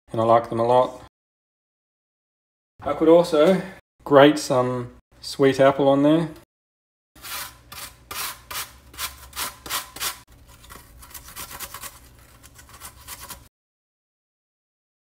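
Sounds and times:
apple grated on metal grater: 0:07.2 - 0:13.5.

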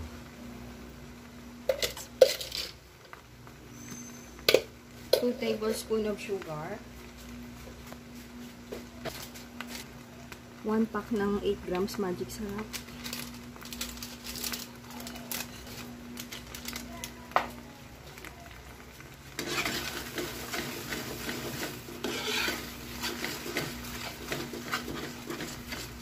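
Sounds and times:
metal spoon stirring in pan: 0:01.6 - 0:03.1, 0:19.1 - 0:26.0.

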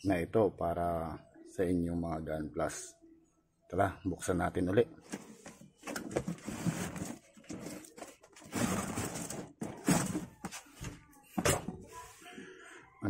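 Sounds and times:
rustling of cardboard and plastic: 0:05.0 - 0:12.2
cardboard lid scraping and sliding: 0:06.0 - 0:07.8, 0:08.4 - 0:10.6.

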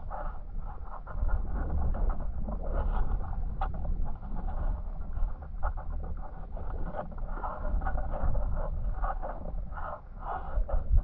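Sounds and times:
crackles of moving stones: 0:00.0 - 0:11.0
underwater river rumble: 0:00.0 - 0:11.0.

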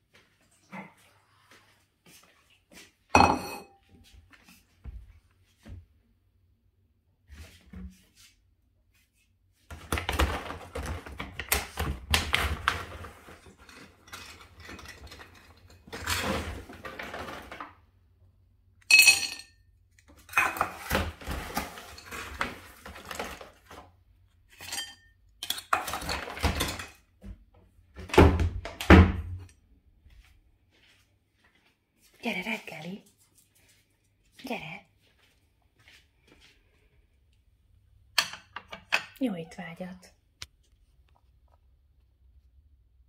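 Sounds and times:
ceramic bowl clink: 0:03.2 - 0:03.8, 0:18.9 - 0:19.6, 0:24.6 - 0:25.7.

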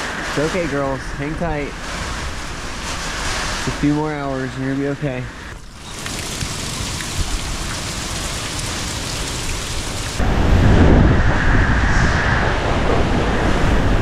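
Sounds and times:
heavy rain hissing: 0:00.0 - 0:11.0
deep rumble of wind pounding building: 0:00.0 - 0:14.0.

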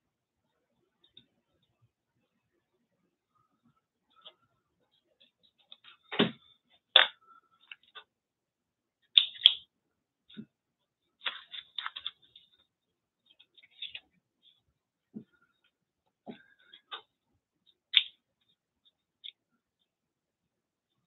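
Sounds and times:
paper rustling: 0:11.2 - 0:12.7.

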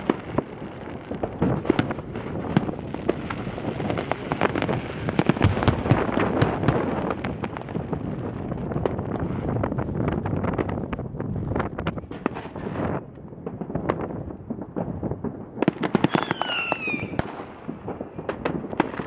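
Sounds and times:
firework shells bursting: 0:15.7 - 0:19.0.

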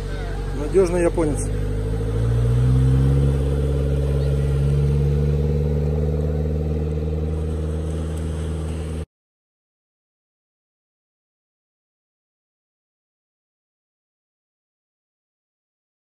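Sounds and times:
car engine driving off: 0:00.0 - 0:09.1.

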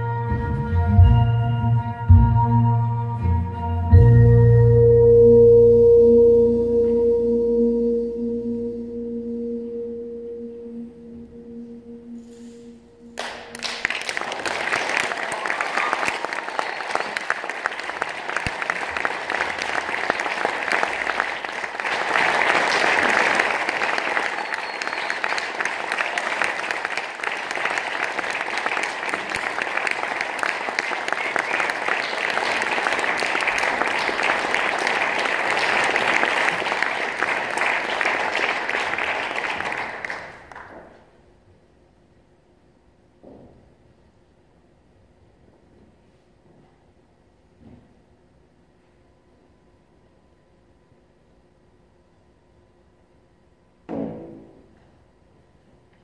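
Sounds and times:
audience applauding: 0:13.2 - 0:41.0.

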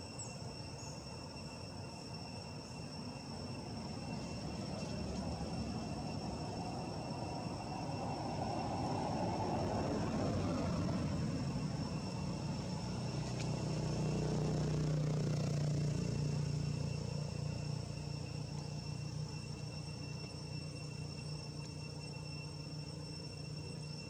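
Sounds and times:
insects droning: 0:00.0 - 0:24.0
vehicle engine rumbling: 0:03.8 - 0:23.9.

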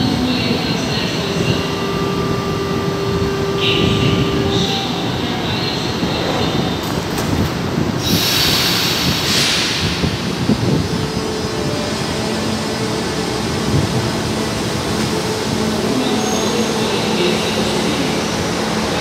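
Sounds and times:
train cars rumbling: 0:00.0 - 0:19.0
air hiss: 0:08.0 - 0:10.4.

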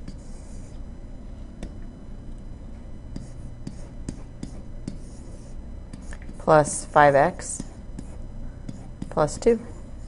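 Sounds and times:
stylus scratching on tablet: 0:00.0 - 0:00.8, 0:03.1 - 0:09.8
faint steady hum: 0:00.0 - 0:10.0.

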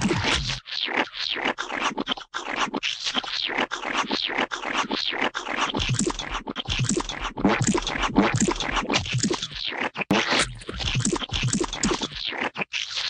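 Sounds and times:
rapid rasping scraping strokes: 0:01.4 - 0:13.0.

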